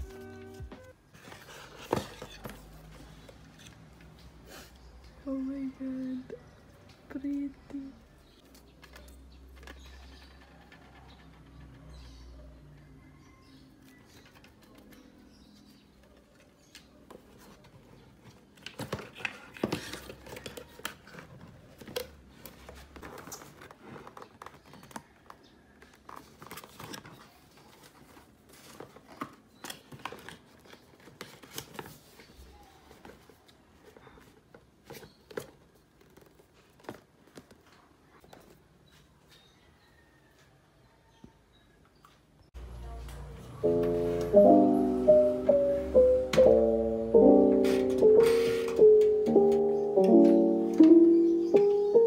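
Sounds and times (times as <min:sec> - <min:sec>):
paper rustling: 0:14.2 - 0:38.6.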